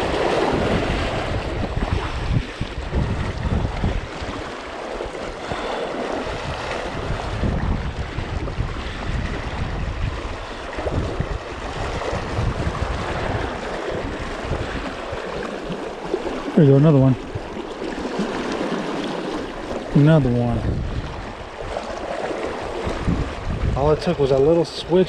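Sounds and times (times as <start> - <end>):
water rushing over a riffle: 0.0 - 25.0
wind buffeting the microphone: 0.0 - 25.0.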